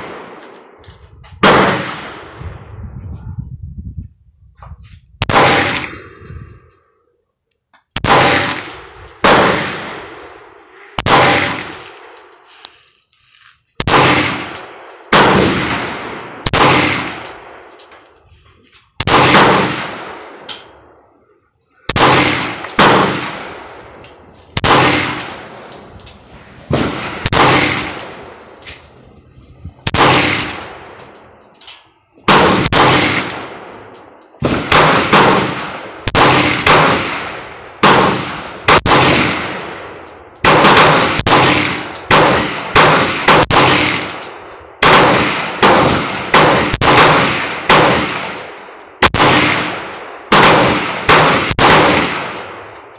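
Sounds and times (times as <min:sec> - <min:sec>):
pistol shots with echo: 0:01.4 - 0:02.3, 0:05.2 - 0:06.2, 0:08.0 - 0:12.2, 0:13.8 - 0:17.7, 0:19.0 - 0:20.8, 0:21.9 - 0:25.9, 0:26.7 - 0:28.5, 0:29.8 - 0:31.1, 0:32.2 - 0:52.9.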